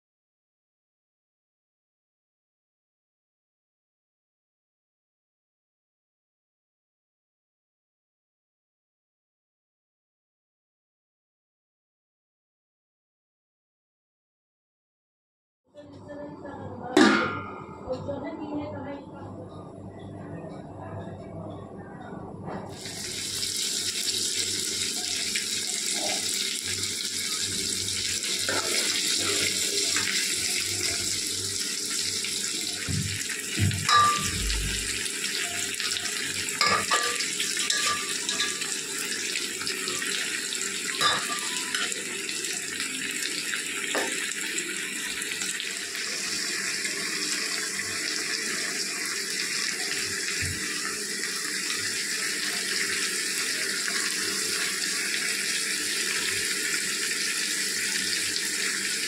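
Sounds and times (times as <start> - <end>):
food sizzling in hot oil: 22.8 - 59.0
spoon clinking against pan: 33.9 - 34.4, 36.6 - 38.8, 41.0 - 41.9.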